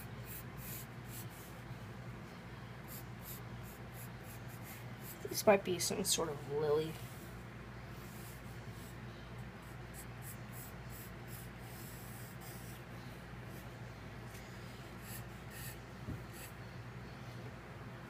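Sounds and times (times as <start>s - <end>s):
steady low hum: 0.0s - 18.0s
pencil sketching on paper: 0.2s - 1.6s, 2.9s - 5.4s, 8.0s - 9.0s, 9.6s - 12.8s, 15.0s - 16.6s.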